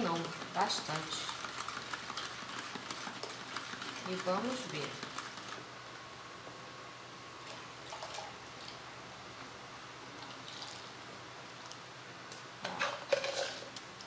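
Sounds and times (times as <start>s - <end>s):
spoon stirring in plastic cup: 0.0s - 5.6s
electric fan hiss: 0.0s - 14.0s
liquid pouring and splashing: 7.5s - 8.4s.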